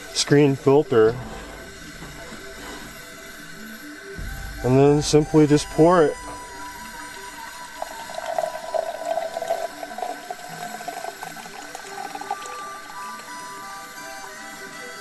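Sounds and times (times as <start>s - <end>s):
coffee pouring into a tumbler: 5.4s - 14.9s.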